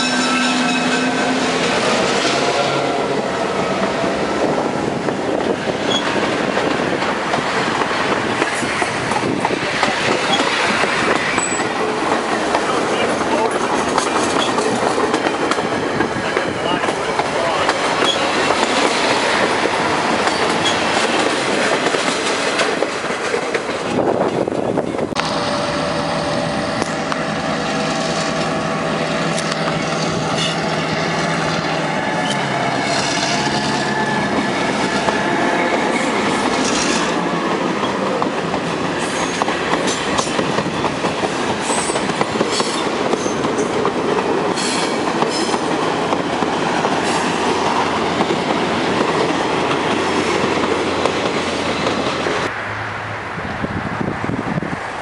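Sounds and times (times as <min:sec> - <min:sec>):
diesel locomotive engines: 0:00.0 - 0:55.0
boxcars clattering over rails: 0:05.2 - 0:25.4.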